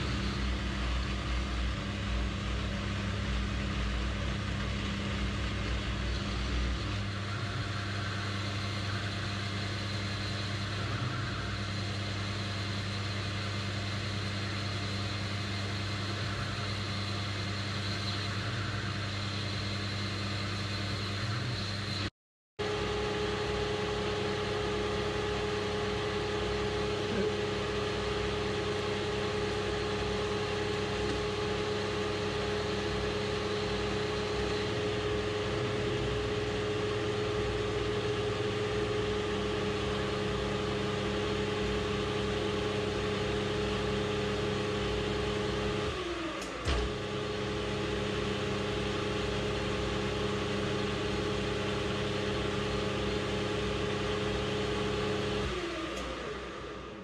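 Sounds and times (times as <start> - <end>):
metal lathe cutting: 0.0 - 22.0.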